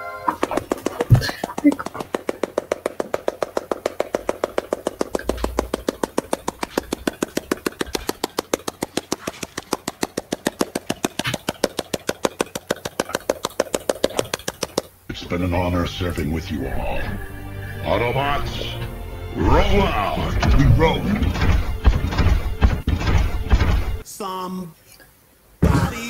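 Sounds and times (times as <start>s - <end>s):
helicopter rotor chopping: 0.4s - 14.9s, 17.8s - 24.0s.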